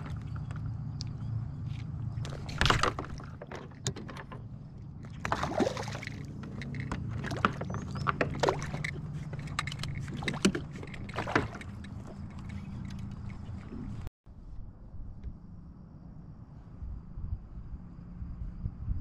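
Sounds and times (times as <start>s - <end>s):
steady low hum: 0.0s - 19.0s
water splashing swishes: 5.1s - 6.4s.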